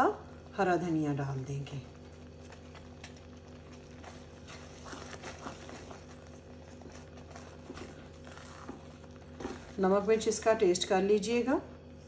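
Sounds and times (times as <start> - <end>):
steady low hum: 0.0 - 12.0
spatula stirring thick food: 2.0 - 10.6.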